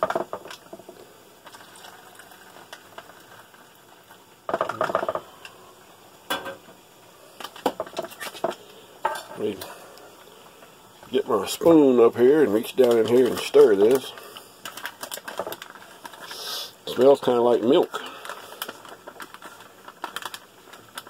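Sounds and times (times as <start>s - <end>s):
foil crinkling: 0.0s - 5.6s, 7.3s - 8.7s, 11.1s - 21.0s.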